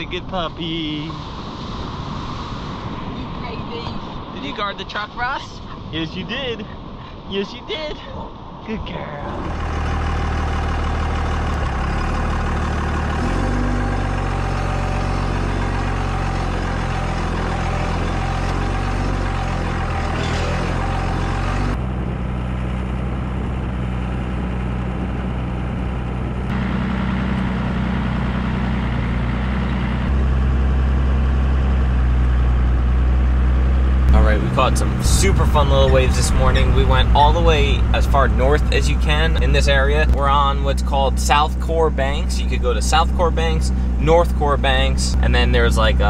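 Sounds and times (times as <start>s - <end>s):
diesel truck engine running: 9.2s - 46.0s.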